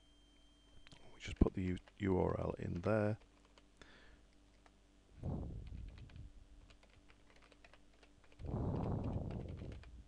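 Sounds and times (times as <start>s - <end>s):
low muffled rushes of noise: 5.2s - 6.3s.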